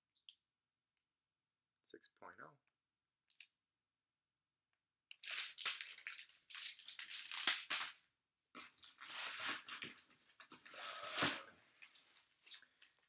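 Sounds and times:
plastic crinkling and crackling: 0:05.1 - 0:08.0, 0:08.6 - 0:13.0.

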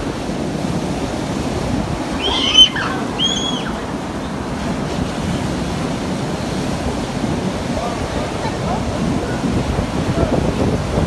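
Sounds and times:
ocean surf breaking: 0:00.0 - 0:11.0
wind on microphone: 0:00.0 - 0:11.0
short high cries: 0:02.1 - 0:04.0.

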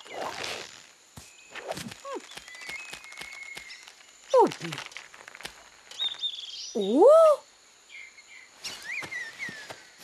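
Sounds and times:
insect trills: 0:00.0 - 0:10.0
bird chirps: 0:05.9 - 0:07.0.

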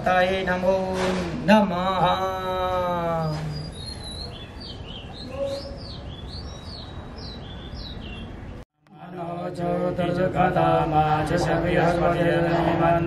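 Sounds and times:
small bird chirping: 0:03.5 - 0:08.6.

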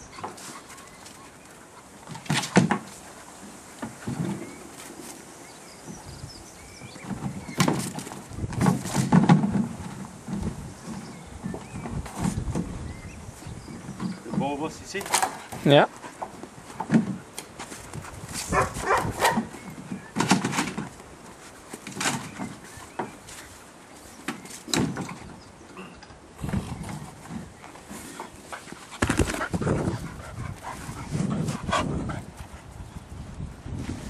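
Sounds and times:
dog barking: 0:18.5 - 0:19.5.

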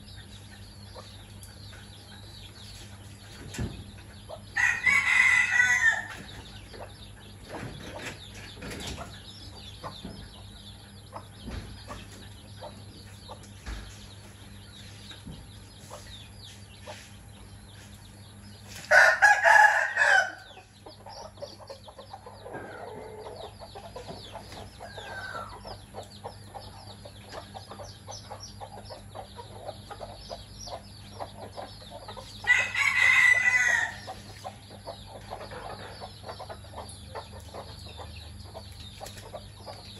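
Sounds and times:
chicks cheeping: 0:00.0 - 0:39.9
hen clucking: 0:00.0 - 0:39.9
rooster crowing: 0:04.6 - 0:06.2, 0:18.9 - 0:20.5, 0:32.5 - 0:34.1.

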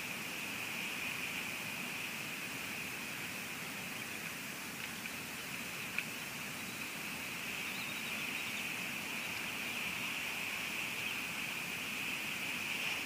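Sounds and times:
rain hissing on camera: 0:00.0 - 0:13.0.

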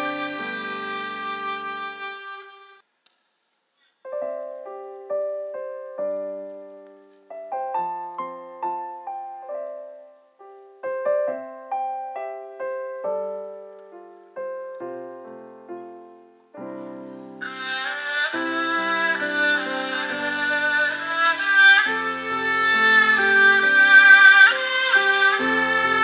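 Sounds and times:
piano notes and chords: 0:00.0 - 0:02.4, 0:04.1 - 0:26.0
bowed strings: 0:00.0 - 0:02.8, 0:16.8 - 0:26.0.

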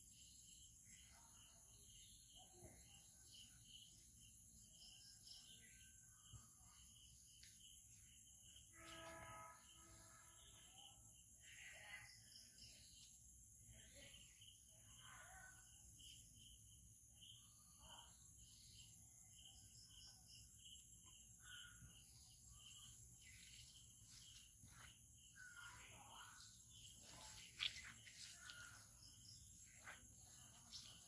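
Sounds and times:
repeating insect chirp: 0:15.7 - 0:31.0
bird calls: 0:17.3 - 0:31.0.

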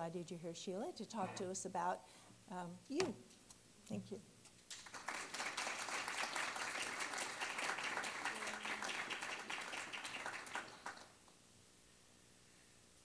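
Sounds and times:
audience applauding: 0:04.7 - 0:11.2.

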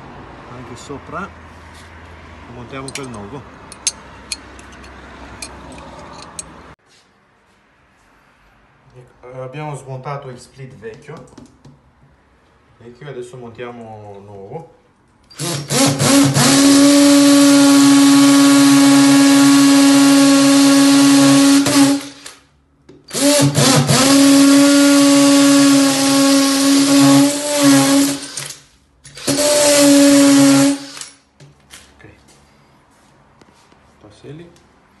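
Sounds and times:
cordless drill boring into plaster: 0:15.3 - 0:22.4, 0:23.1 - 0:31.2.

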